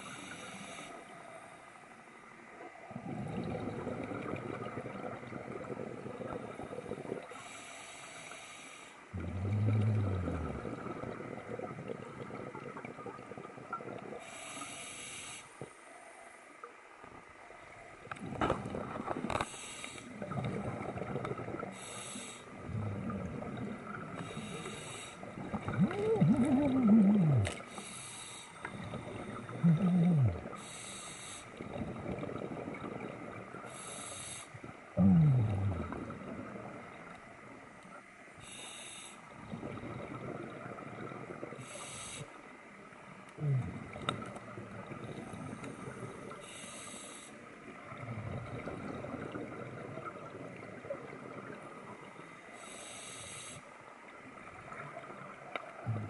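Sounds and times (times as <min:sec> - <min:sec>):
regulator hiss on inhale: 0:00.0 - 0:01.9, 0:07.2 - 0:09.1, 0:14.2 - 0:16.5, 0:19.3 - 0:20.2, 0:21.6 - 0:22.6, 0:24.1 - 0:25.4, 0:27.4 - 0:31.7, 0:33.6 - 0:34.8, 0:38.4 - 0:39.5, 0:41.6 - 0:42.6, 0:45.2 - 0:47.6, 0:52.4 - 0:53.9
exhaled bubbles rumbling: 0:02.6 - 0:07.3, 0:09.2 - 0:14.2, 0:17.2 - 0:19.5, 0:20.1 - 0:21.9, 0:22.5 - 0:24.6, 0:25.2 - 0:27.8, 0:28.6 - 0:30.7, 0:31.5 - 0:33.8, 0:34.6 - 0:37.6, 0:39.4 - 0:41.7, 0:43.3 - 0:46.4, 0:47.6 - 0:52.2, 0:54.2 - 0:56.0.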